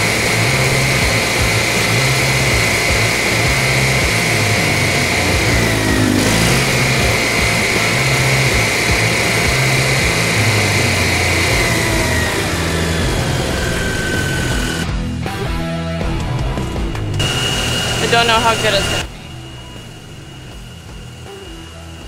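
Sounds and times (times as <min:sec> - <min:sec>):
generator engine running: 0:00.0 - 0:22.0
music playing: 0:00.0 - 0:22.0.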